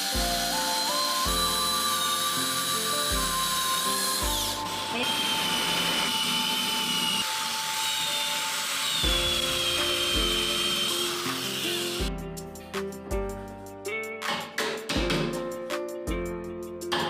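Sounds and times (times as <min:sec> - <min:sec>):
electric drill boring into wood: 0:00.0 - 0:12.1
background music: 0:00.0 - 0:17.0.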